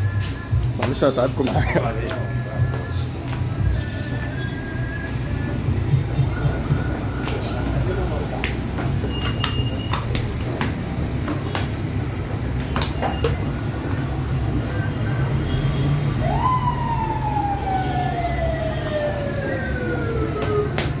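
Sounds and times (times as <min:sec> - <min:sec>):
dough slapping on counter: 0:08.4 - 0:11.9, 0:12.5 - 0:13.5, 0:20.4 - 0:21.0
siren-like tone: 0:14.8 - 0:20.8.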